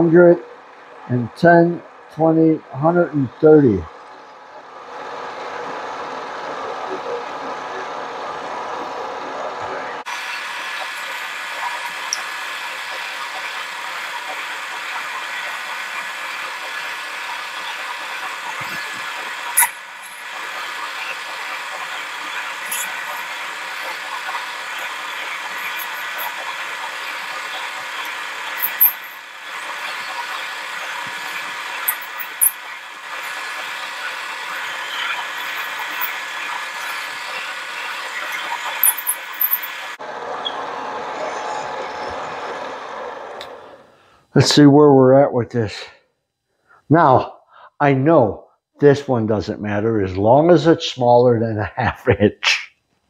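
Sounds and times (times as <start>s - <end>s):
lathe motor and gear whine: 0.0s - 44.0s
lower machine running noise: 0.0s - 44.7s
metal cutting noise: 5.4s - 43.9s
high clicks and squeaks: 10.8s - 12.3s, 17.6s - 33.7s, 34.4s - 40.6s.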